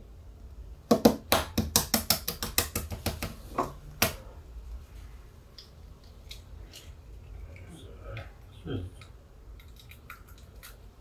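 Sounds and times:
egg tapping against bowl rim: 0.9 - 3.4.

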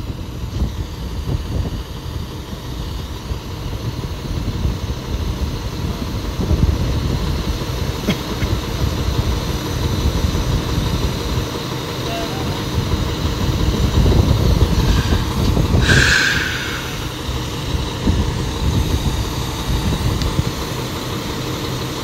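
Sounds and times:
vehicle engines idling: 0.0 - 22.0
brief sharp sound: 14.9 - 17.3.

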